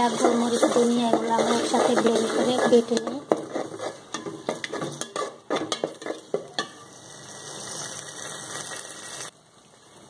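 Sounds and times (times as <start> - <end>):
spatula scraping a metal pot: 0.0 - 6.8
spices sizzling in a pot: 0.0 - 10.0.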